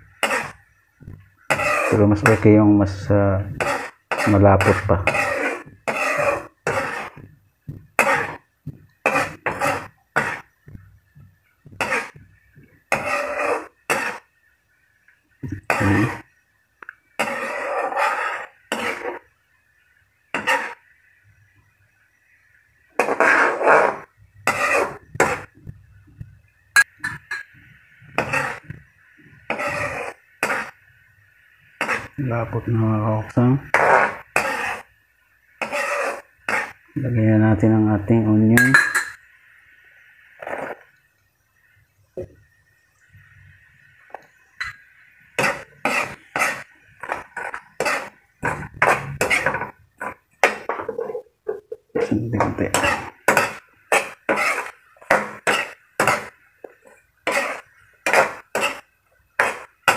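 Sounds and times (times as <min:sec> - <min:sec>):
metal ladle scraping a wok: 0:01.5 - 0:02.4, 0:03.6 - 0:07.2, 0:08.0 - 0:08.4, 0:09.0 - 0:10.5, 0:11.8 - 0:12.2, 0:12.9 - 0:14.3, 0:17.2 - 0:19.2, 0:20.4 - 0:20.8, 0:23.0 - 0:25.5, 0:28.2 - 0:28.7, 0:29.5 - 0:30.8, 0:31.8 - 0:32.2, 0:33.7 - 0:34.9, 0:35.6 - 0:36.8, 0:44.1 - 0:51.7, 0:52.6 - 0:59.9.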